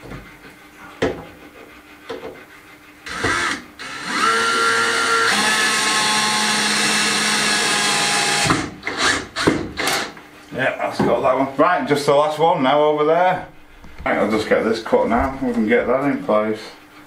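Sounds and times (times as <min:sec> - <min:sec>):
cordless drill driving screw: 0:03.1 - 0:10.1.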